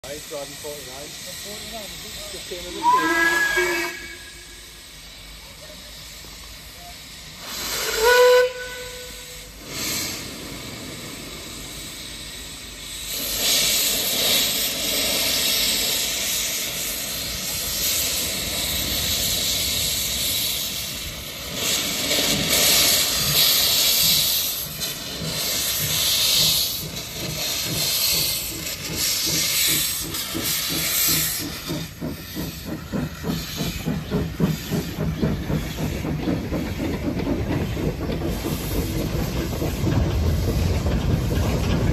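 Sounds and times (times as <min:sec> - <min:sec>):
loud hiss of steam: 0:00.0 - 0:41.9
steam locomotive whistle: 0:02.7 - 0:04.8, 0:06.8 - 0:09.5.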